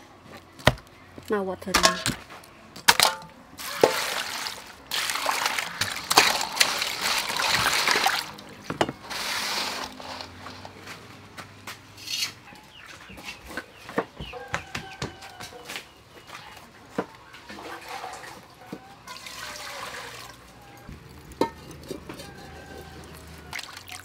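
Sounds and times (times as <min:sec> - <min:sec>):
shrimp swished in water: 0:03.6 - 0:08.4
water pouring into metal bowl: 0:03.6 - 0:08.4, 0:19.1 - 0:20.4, 0:21.0 - 0:24.0.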